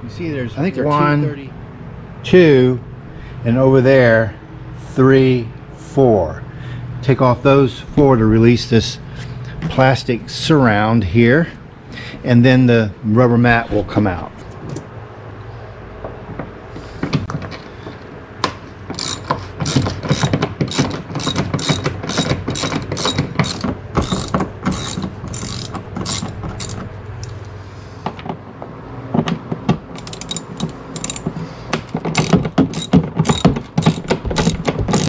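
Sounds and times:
socket ratchet clicking: 19.0 - 27.4, 30.0 - 35.0.

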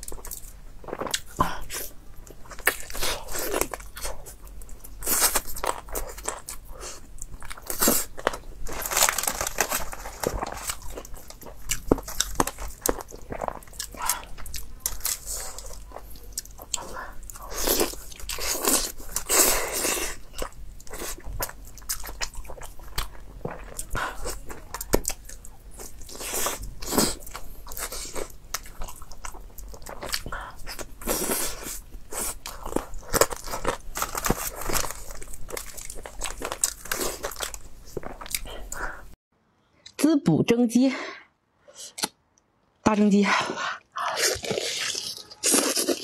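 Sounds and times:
close chewing and mouth sounds: 0.0 - 39.2, 43.4 - 46.0
meat pulled apart on foil: 8.7 - 10.8.

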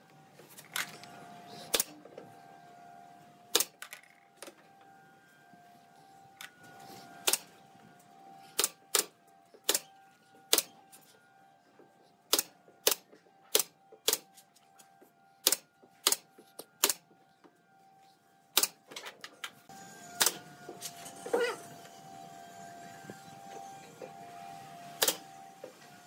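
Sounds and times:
nail gun shots: 3.5 - 3.8, 7.2 - 7.5, 8.6 - 9.9, 12.3 - 14.3, 15.4 - 16.2, 16.8 - 17.0, 18.6 - 18.8, 20.2 - 20.4, 25.0 - 25.2.

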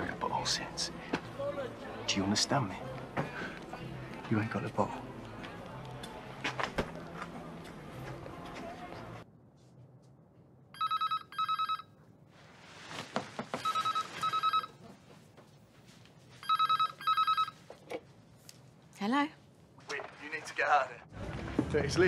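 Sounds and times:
phone ringing with electronic trills: 10.8 - 11.9, 13.6 - 14.8, 16.4 - 17.6.

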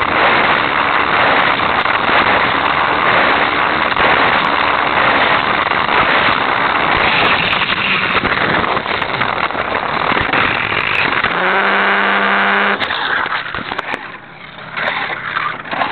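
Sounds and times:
toy motor humming: 11.3 - 12.8.

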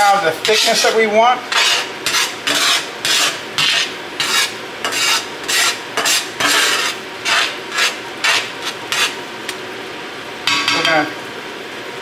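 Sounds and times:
metal spatula scraping skillet: 0.0 - 9.2.

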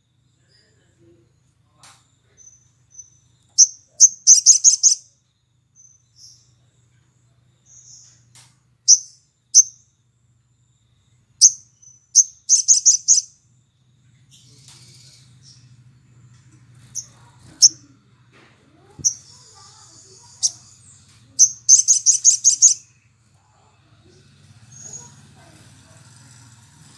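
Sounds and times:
bird chirping: 2.3 - 6.8, 7.6 - 8.2, 8.9 - 10.0, 11.0 - 13.4, 14.1 - 18.0, 19.0 - 25.2.

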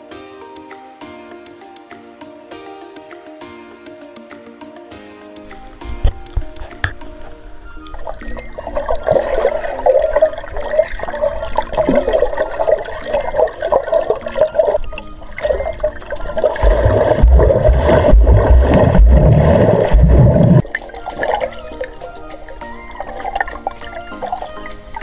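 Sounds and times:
water running and splashing: 6.9 - 25.0
heavy low rumbles: 16.6 - 20.6.

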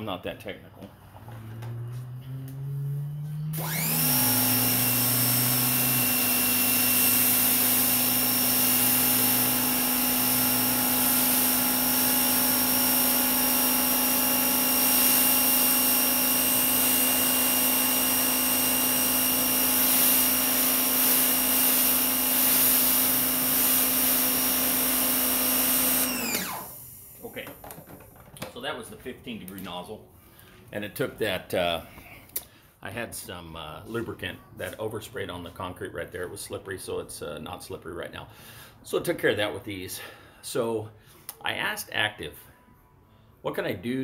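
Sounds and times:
pressure washer motor humming: 1.5 - 27.0.

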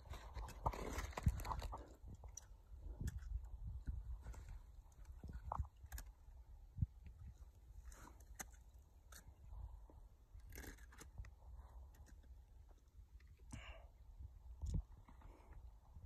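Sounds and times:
wind rumble on microphone: 0.0 - 7.7, 14.2 - 16.0.

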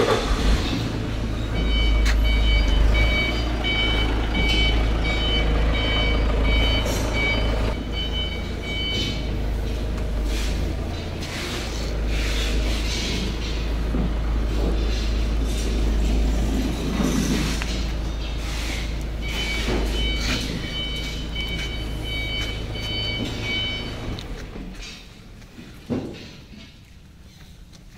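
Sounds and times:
reversing alarm beeps: 1.3 - 10.6, 18.3 - 24.4.

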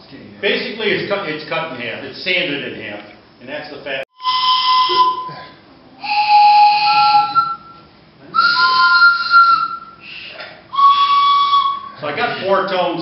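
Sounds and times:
wooden train whistle blasts: 4.2 - 12.0.

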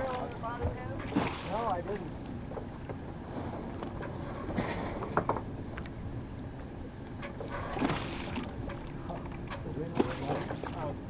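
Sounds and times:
water washing along hull: 0.0 - 11.0
knocks and creaks: 2.5 - 6.0, 6.6 - 10.6.

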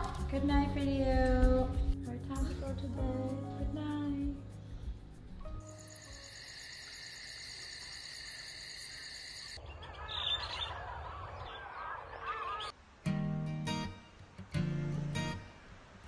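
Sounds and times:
pulsing trill of calling animals: 5.7 - 12.7
birds chirping: 9.3 - 12.8
acoustic guitar music: 13.0 - 15.6.

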